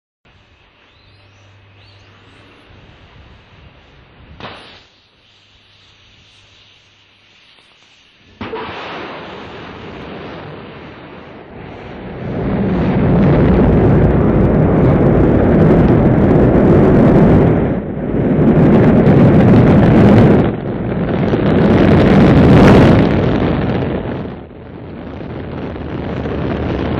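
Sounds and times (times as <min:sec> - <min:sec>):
rocket launch roar: 0:04.2 - 0:05.0, 0:08.2 - 0:26.9.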